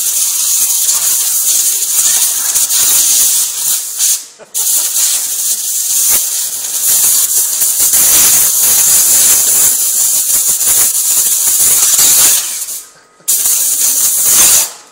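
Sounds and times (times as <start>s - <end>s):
compressed air blow gun hiss: 0.0s - 14.8s.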